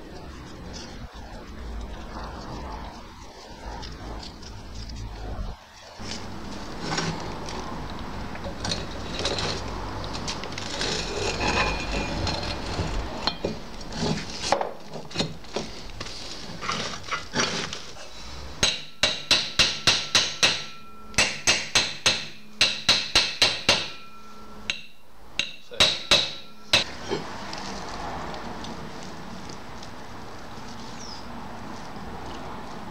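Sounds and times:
scraping and handling parts: 3.8s - 22.4s
ringing metal knocks: 18.6s - 27.0s.

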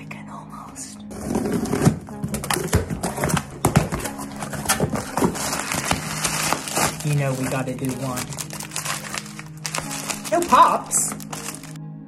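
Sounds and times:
bubble wrap crinkling: 2.5s - 11.8s.

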